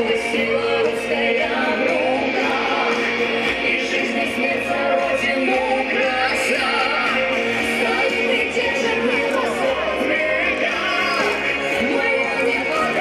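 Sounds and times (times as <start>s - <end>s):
loud music with singing: 0.0s - 13.0s.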